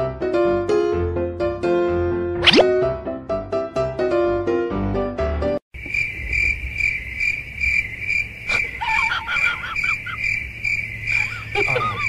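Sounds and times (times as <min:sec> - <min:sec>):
piano-like music: 0:00.0 - 0:05.6
cricket chirping: 0:05.8 - 0:12.0.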